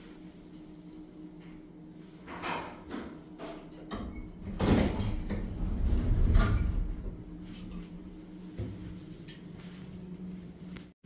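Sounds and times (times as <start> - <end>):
steady low hum: 0.0 - 11.0
elevator doors sliding open: 3.4 - 8.1
door mechanism rumble: 3.4 - 8.3.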